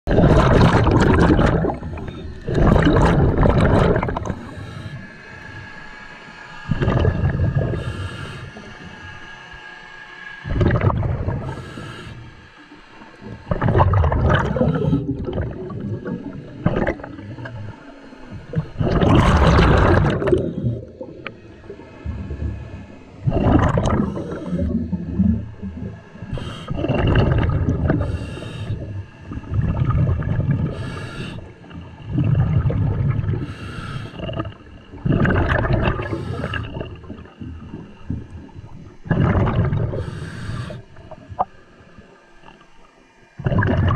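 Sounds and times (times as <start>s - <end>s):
exhaled bubbles gurgling underwater: 0.1s - 9.7s, 10.4s - 43.9s
regulator inhale hiss: 4.2s - 6.7s, 7.6s - 9.9s, 11.4s - 13.4s, 24.0s - 24.9s, 26.2s - 26.9s, 27.9s - 29.5s, 30.6s - 32.0s, 33.3s - 35.0s, 36.0s - 38.5s, 39.9s - 42.9s.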